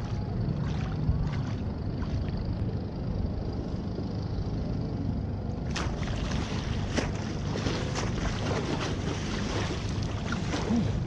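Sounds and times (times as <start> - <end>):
water sloshing around legs: 0.0 - 2.5, 5.7 - 11.0
wind buffeting microphone: 0.0 - 4.8.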